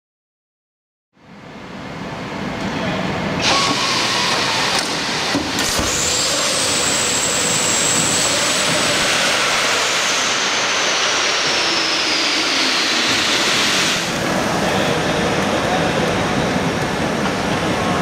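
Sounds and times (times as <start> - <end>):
rushing hiss of inflation gas: 5.9 - 14.2.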